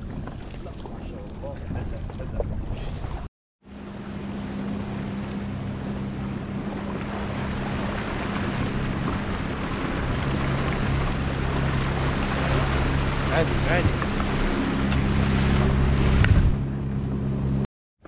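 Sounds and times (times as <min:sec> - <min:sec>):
water rushing: 0:00.0 - 0:17.1
jet ski engine hum: 0:00.0 - 0:17.7
wind: 0:00.0 - 0:17.7.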